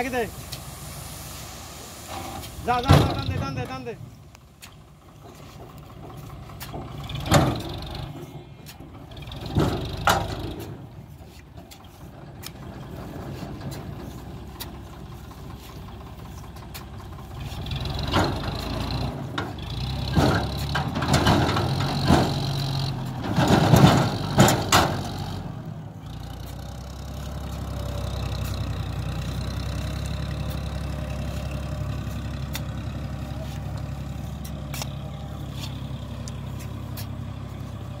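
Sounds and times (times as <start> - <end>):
tractor diesel engine running: 0.0 - 38.0
hand hoe scraping sand: 10.5 - 17.8, 26.2 - 38.0.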